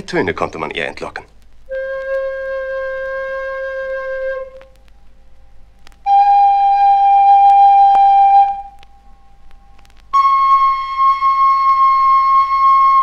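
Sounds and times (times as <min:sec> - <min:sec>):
reed pipe long notes: 0:01.7 - 0:13.0.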